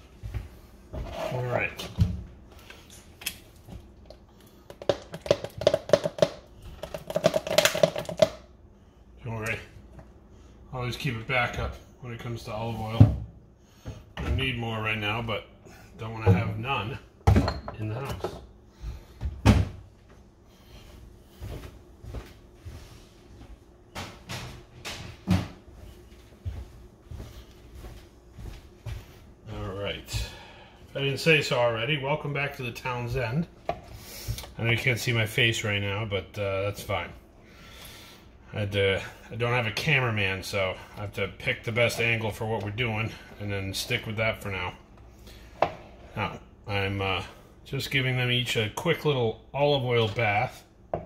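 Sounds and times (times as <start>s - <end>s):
kitchen cupboard knocks and thumps: 17.2s - 18.4s, 19.2s - 19.8s.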